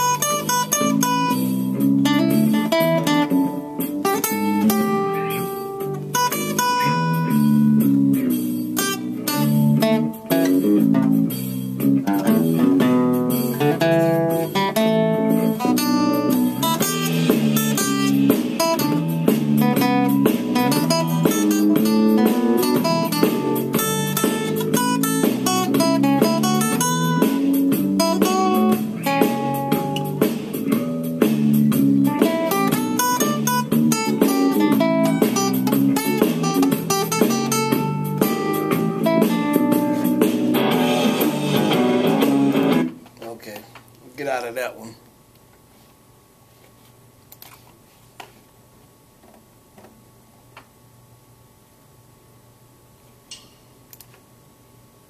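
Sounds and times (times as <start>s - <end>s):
acoustic guitar blues riffs: 0.0s - 43.1s.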